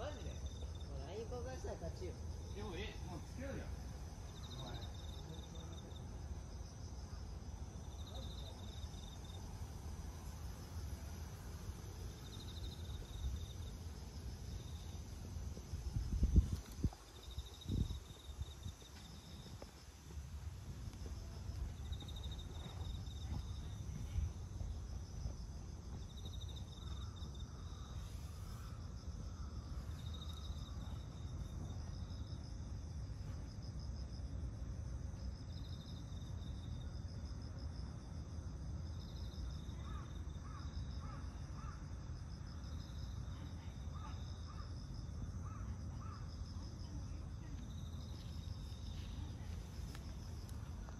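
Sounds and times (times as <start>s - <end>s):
insects chirping in pulsed trills: 0.0s - 50.9s.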